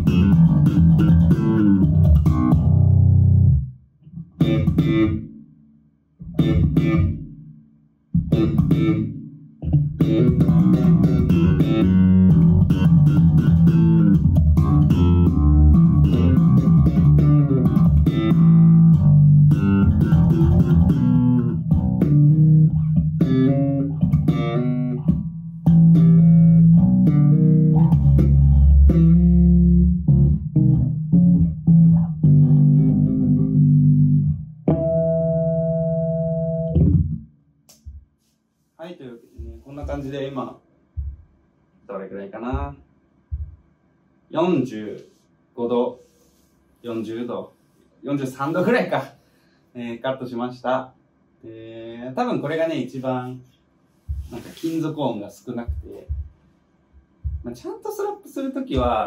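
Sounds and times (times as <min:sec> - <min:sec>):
slapped electric bass: 0:00.0 - 0:05.4, 0:06.2 - 0:07.4, 0:08.2 - 0:37.9, 0:58.7 - 0:59.0.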